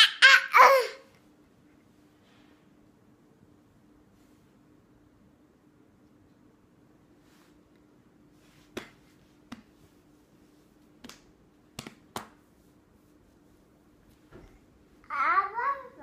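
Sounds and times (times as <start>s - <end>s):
faint steady hum: 0.0s - 16.0s
hand snaps: 11.0s - 12.4s.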